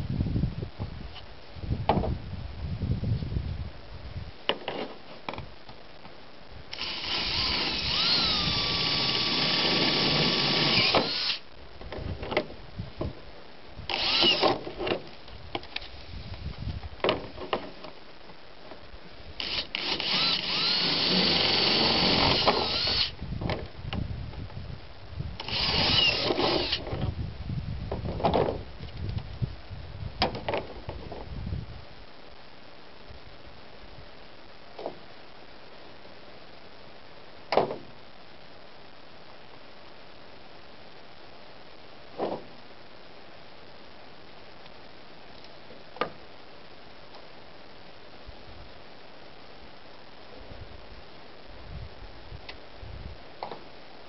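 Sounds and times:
cordless drill whining: 6.7s - 11.4s, 13.9s - 14.6s, 19.4s - 23.1s, 25.4s - 26.8s.

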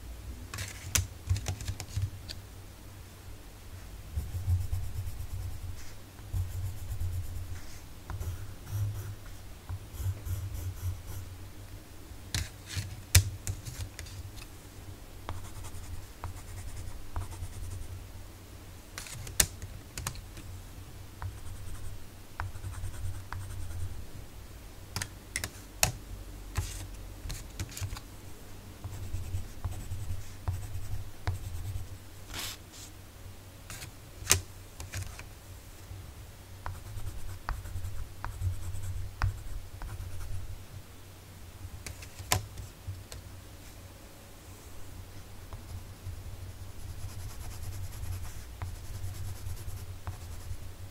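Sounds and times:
pencils clicking and tapping: 0.6s - 2.1s, 12.4s - 14.1s, 25.0s - 26.0s
pencil scratching on paper: 9.9s - 11.2s, 46.8s - 50.6s.

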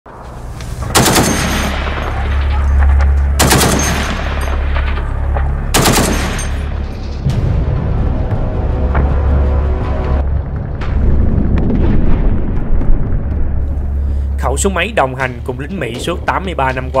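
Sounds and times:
low rumble: 0.1s - 17.0s
heavy machine gun bursts: 0.9s - 2.5s, 3.4s - 4.9s, 5.7s - 6.7s.

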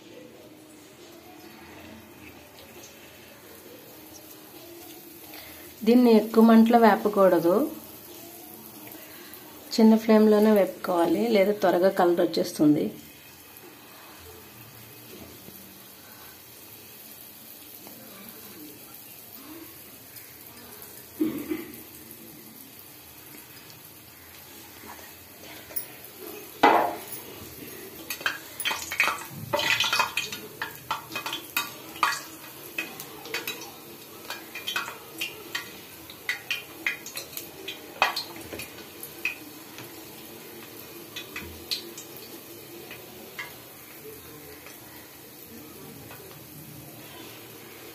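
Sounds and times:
oil sizzling: 0.0s - 47.9s
metal utensils clinking on pan: 28.0s - 39.5s.

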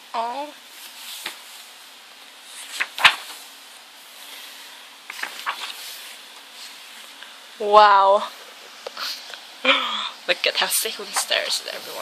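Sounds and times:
paper pages rustling: 0.8s - 3.6s, 4.3s - 7.2s, 10.9s - 12.0s
sharp paper snap: 2.7s - 3.4s.

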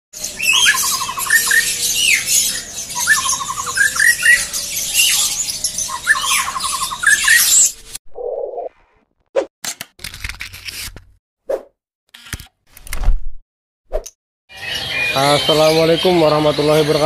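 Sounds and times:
many birds chirping: 0.2s - 8.0s, 14.5s - 17.0s
songbird singing whistled phrase: 0.4s - 7.6s.

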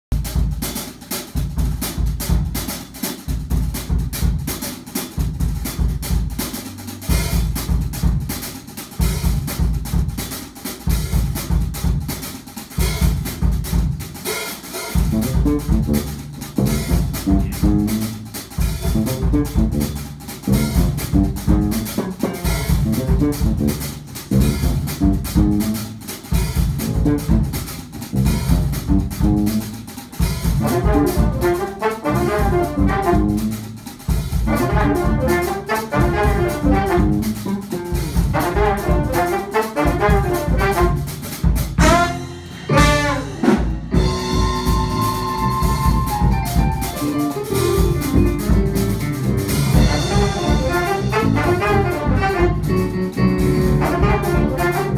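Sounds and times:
drum kit: 0.0s - 54.9s
jazz combo playing funk: 0.1s - 54.9s
electric bass riff: 15.1s - 26.0s, 26.6s - 29.8s, 41.8s - 54.9s.

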